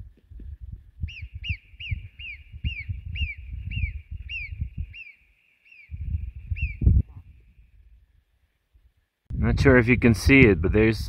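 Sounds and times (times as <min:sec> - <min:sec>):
marmot alarm whistles: 0:01.0 - 0:07.0.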